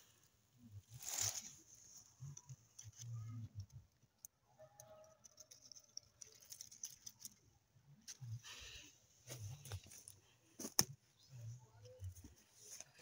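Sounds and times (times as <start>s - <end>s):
dry straw and leaves rustling: 0.8s - 3.0s.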